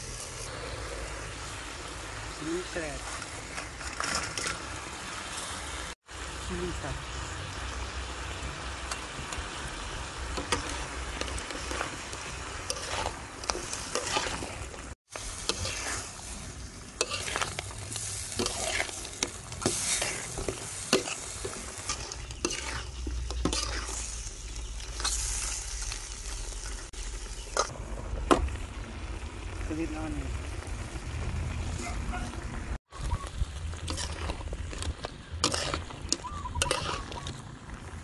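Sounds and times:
crabs sizzling in a wok: 0.0 - 38.0
metal spatula scraping a pan: 3.0 - 4.7, 10.4 - 26.9, 33.7 - 37.4.

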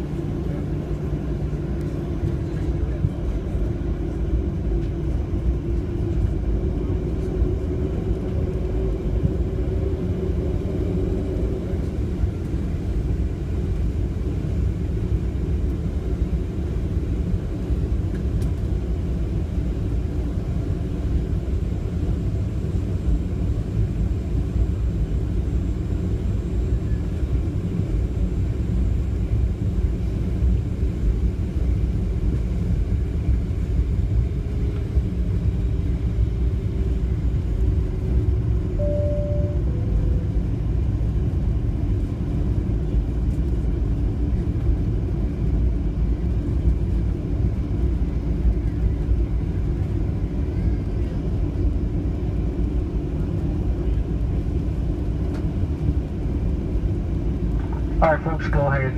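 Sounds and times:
aircraft engines rumbling: 0.0 - 58.9
wheels rolling on taxiway: 0.1 - 38.7
two-note falling chime: 38.8 - 39.9.

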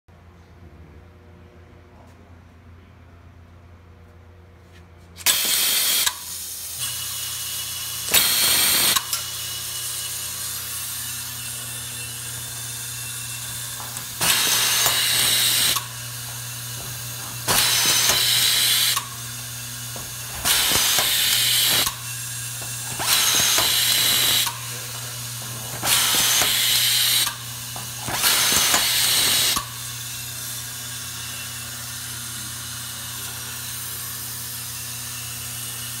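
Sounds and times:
screwdriver hissing bursts: 5.2 - 9.5, 13.1 - 29.9.

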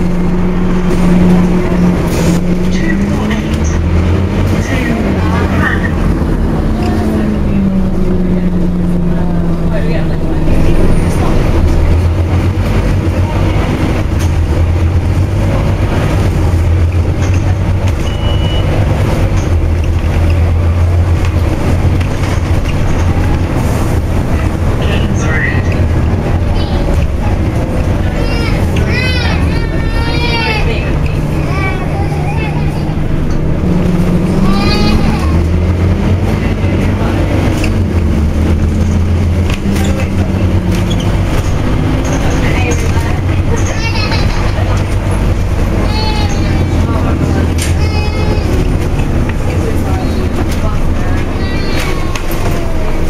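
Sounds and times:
bus diesel engine drone: 0.0 - 53.0
road noise: 0.0 - 53.0
short high beep: 18.1 - 18.7.

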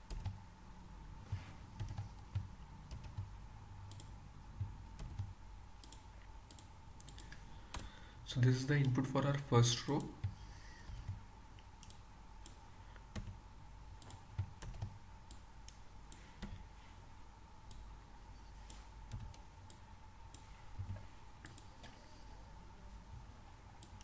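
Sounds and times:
keyboard keys clicking: 14.0 - 15.4.

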